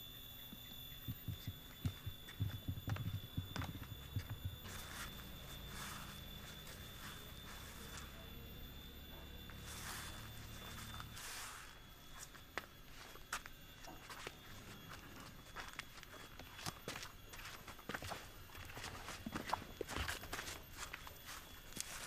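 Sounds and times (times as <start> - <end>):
footsteps on wooden steps: 1.0 - 8.0, 12.2 - 22.0
footsteps swishing through grass: 4.7 - 8.1, 9.6 - 12.3, 20.8 - 22.0.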